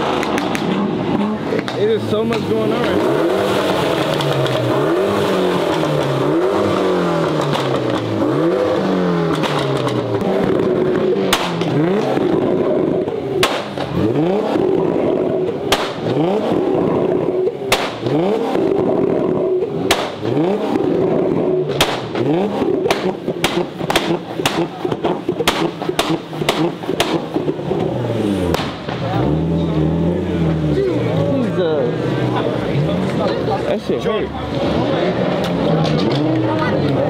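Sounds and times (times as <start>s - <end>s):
sharp exhaust pops: 0.0s - 29.2s
car engine revving: 0.0s - 37.0s.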